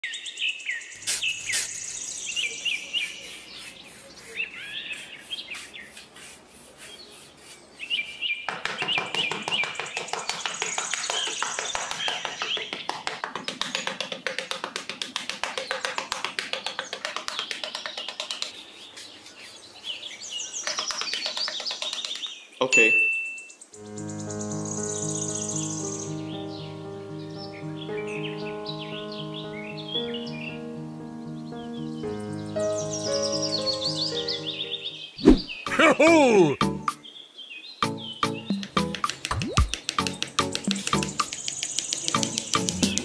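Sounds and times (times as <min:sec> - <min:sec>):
birds chirping: 0:00.0 - 0:14.3, 0:15.5 - 0:43.0
trowel scraping damp sand: 0:01.0 - 0:08.4, 0:18.4 - 0:20.6
background music: 0:23.8 - 0:35.0, 0:35.6 - 0:37.1, 0:37.8 - 0:43.0.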